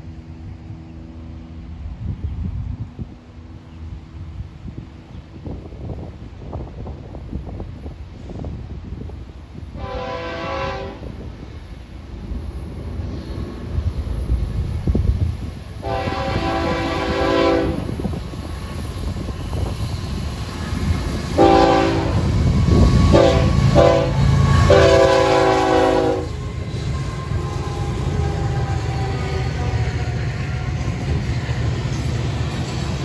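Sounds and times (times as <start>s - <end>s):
diesel locomotives rumbling: 0.0s - 33.0s
locomotive air horn blasts: 9.8s - 11.1s, 15.8s - 18.0s, 21.3s - 31.0s.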